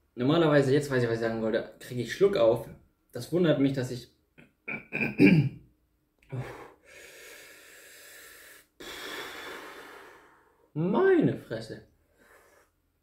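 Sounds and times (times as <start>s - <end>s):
man exhaling hard: 6.3s - 10.7s.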